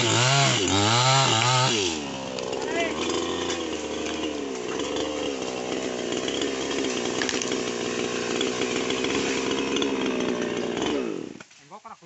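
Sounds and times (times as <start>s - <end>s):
chainsaw cutting wood: 0.0s - 11.6s.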